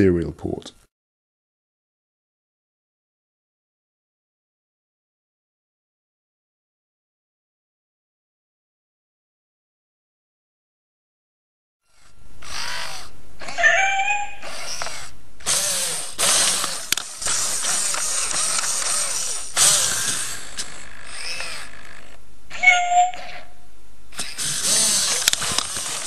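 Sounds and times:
robot dog servo motors whirring: 11.8s - 23.4s, 24.1s - 26.0s
electronic animal-like cries: 11.9s - 23.5s.

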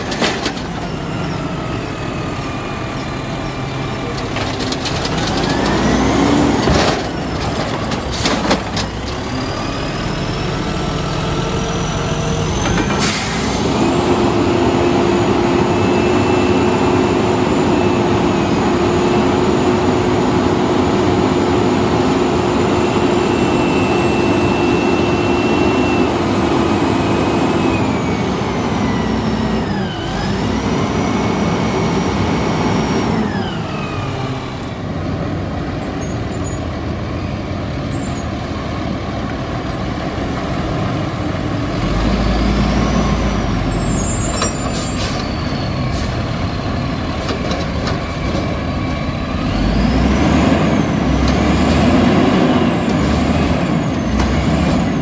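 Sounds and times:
hydraulics whining: 0.0s - 38.4s
diesel engine revving: 0.0s - 55.0s
air brakes hissing: 12.0s - 13.8s, 43.8s - 46.2s.

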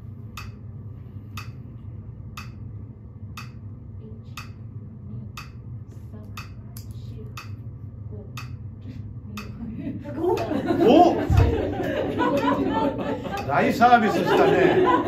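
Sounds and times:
steady low hum: 0.0s - 15.0s
metronome clicking: 0.4s - 0.6s, 1.4s - 1.6s, 2.4s - 2.6s, 3.4s - 3.6s, 4.3s - 4.6s, 5.4s - 5.6s, 6.3s - 7.6s, 8.4s - 8.6s, 9.4s - 9.6s.

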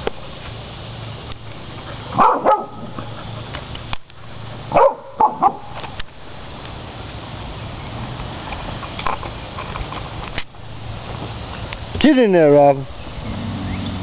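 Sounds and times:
dog barking: 2.2s - 2.9s, 4.7s - 5.7s.

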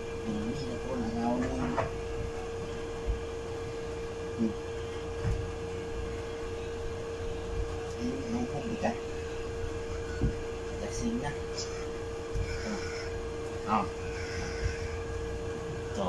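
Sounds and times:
steady room hum: 0.0s - 16.0s
low murmurs: 4.0s - 16.0s.

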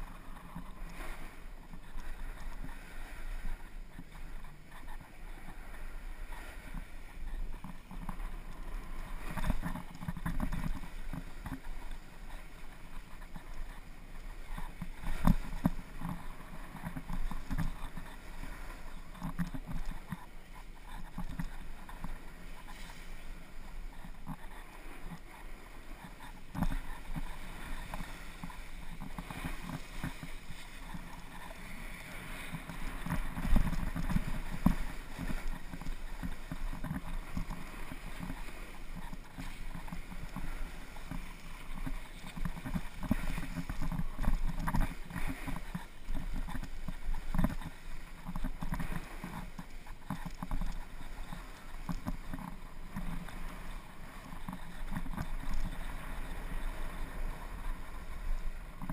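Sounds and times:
wind on camera microphone: 0.0s - 58.9s
ski edges scraping on snow: 5.6s - 58.7s.

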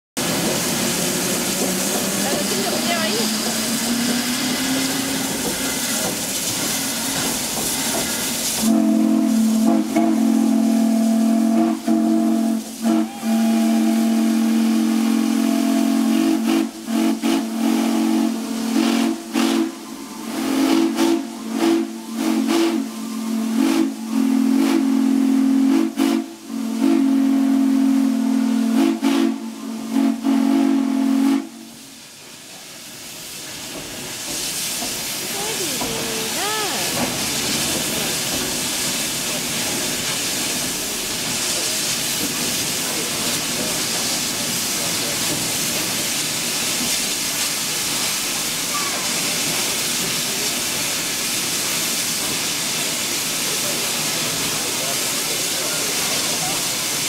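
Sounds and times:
steam hissing: 0.2s - 57.0s
steam whistle: 6.6s - 31.8s.

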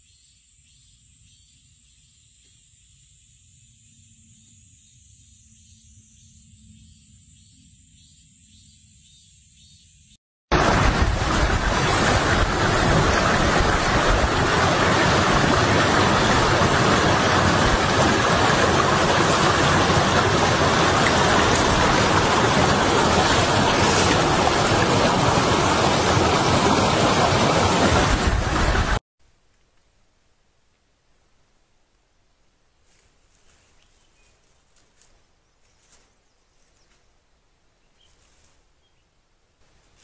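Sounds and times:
loud water-like rushing noise: 10.5s - 29.0s.

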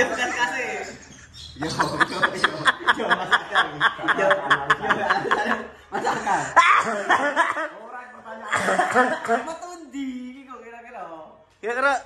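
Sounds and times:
people talking: 0.0s - 6.5s
people laughing: 1.6s - 9.5s.

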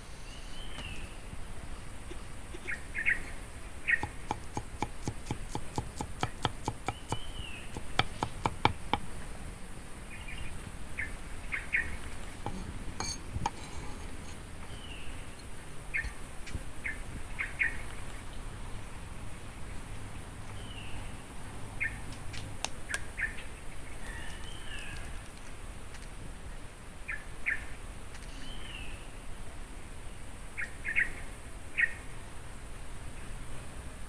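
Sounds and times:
birds chirping: 0.2s - 18.2s
knife chopping on wooden block: 3.9s - 9.1s.

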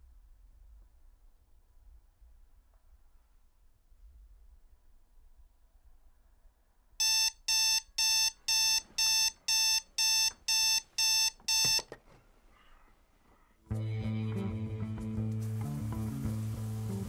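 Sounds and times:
alarm clock beeping: 7.0s - 11.9s.

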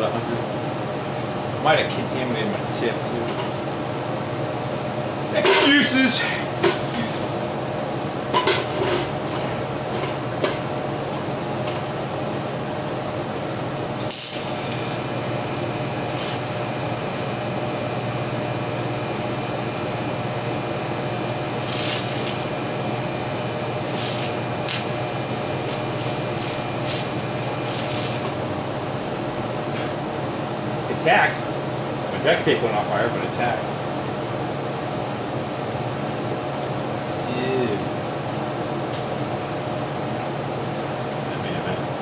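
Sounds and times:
welding arc hissing: 13.8s - 30.0s, 38.8s - 40.2s.

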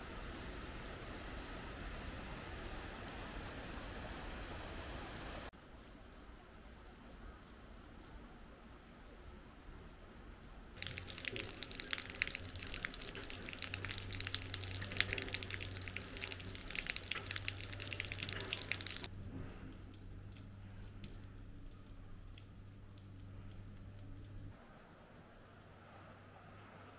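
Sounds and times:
water dripping from roof eaves: 5.5s - 24.6s.

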